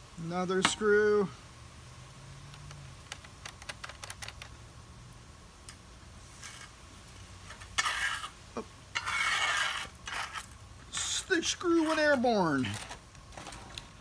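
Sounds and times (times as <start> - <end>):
hand brushing tabletop: 9.0 - 12.8.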